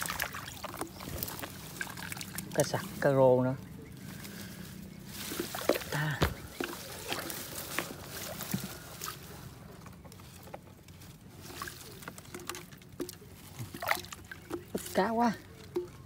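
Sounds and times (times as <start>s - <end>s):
water splashes: 0.0s - 3.7s, 5.1s - 9.4s, 11.3s - 16.0s
water sloshing and trickling: 0.0s - 16.0s
fish trap knocks: 6.2s - 6.8s.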